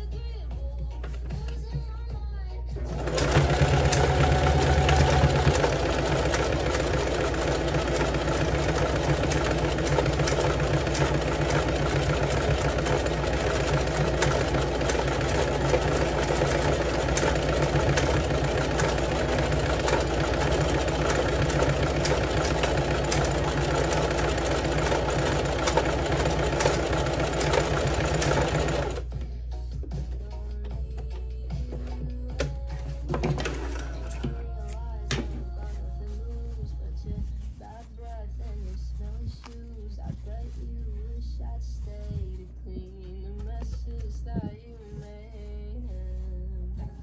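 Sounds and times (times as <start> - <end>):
sewing machine stitching: 2.8 - 29.1, 33.1 - 34.4.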